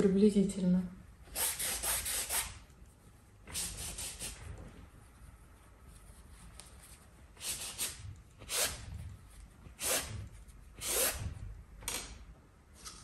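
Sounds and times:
rag wiping across canvas: 3.5 - 11.4.

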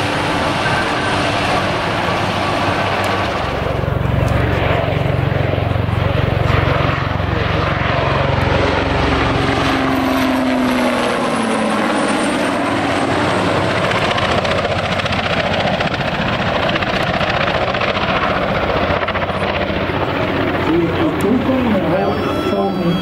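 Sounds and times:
helicopter flying past: 0.0 - 23.0.

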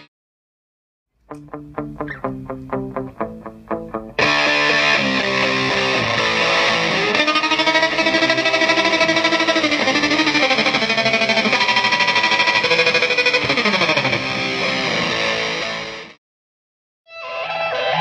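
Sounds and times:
electric guitar with tremolo: 1.2 - 16.2, 17.1 - 18.0.

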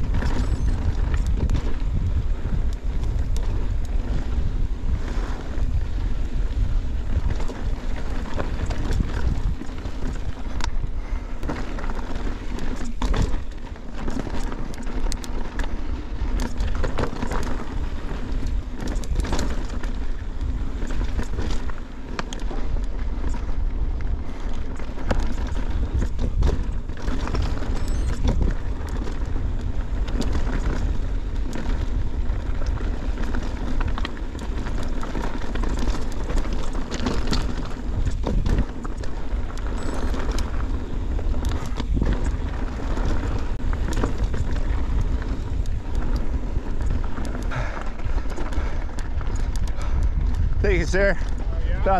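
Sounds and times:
bike clicks and rattles: 0.0 - 51.9
wind and trail rumble: 0.0 - 51.9.

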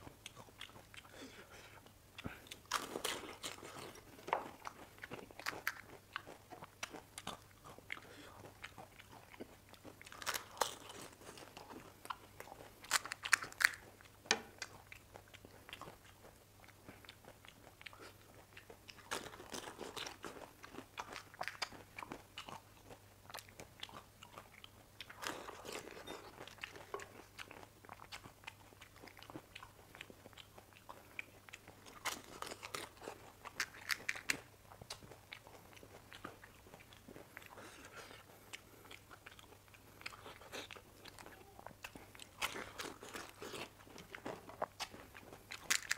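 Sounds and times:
chewing: 0.0 - 45.9
crisp shells crunching: 45.6 - 45.9.

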